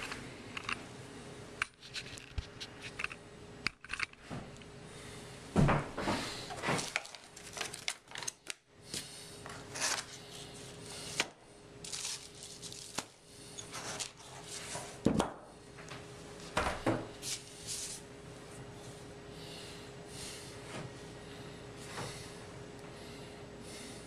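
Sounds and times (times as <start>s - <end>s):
plastic wrapping rustling: 6.5s - 8.6s, 11.8s - 13.2s.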